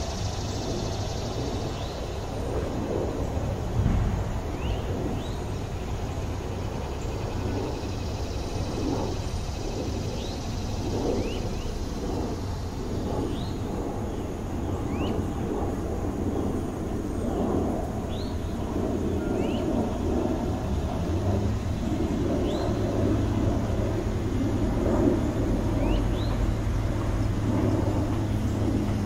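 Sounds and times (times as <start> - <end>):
steady low rumble: 0.0 - 29.0
small bird chirping: 21.8 - 22.8, 25.8 - 26.5.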